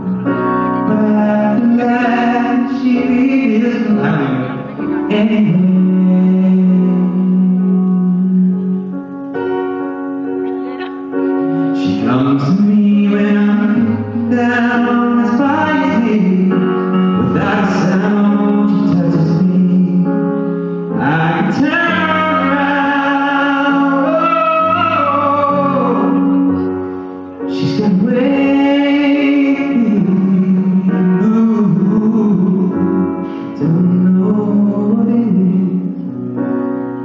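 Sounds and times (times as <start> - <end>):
electric keyboard chords: 0.0 - 37.0
singer breathing: 33.2 - 33.6.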